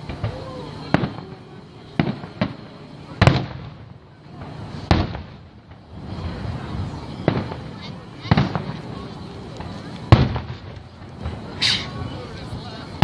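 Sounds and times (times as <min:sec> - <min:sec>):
firework shells bursting: 0:07.2 - 0:12.4.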